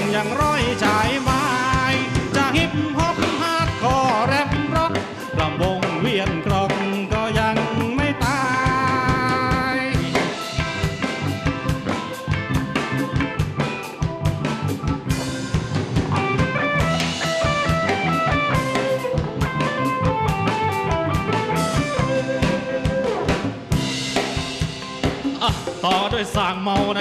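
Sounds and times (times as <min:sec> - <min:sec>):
drum kit beat: 0:00.0 - 0:27.0
lead melody line: 0:00.0 - 0:27.0
live rock band playing: 0:00.0 - 0:27.0.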